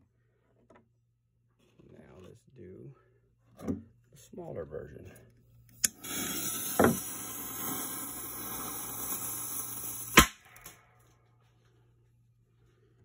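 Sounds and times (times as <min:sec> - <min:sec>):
firecracker fuse hissing: 0:05.8 - 0:10.8
firecracker bang: 0:05.9 - 0:10.9.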